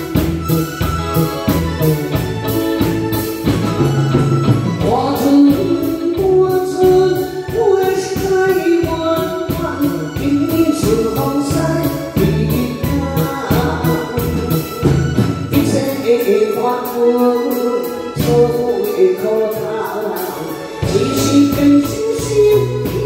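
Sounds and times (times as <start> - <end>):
live band playing: 0.0 - 23.0
woman singing: 4.8 - 14.8, 15.5 - 23.0.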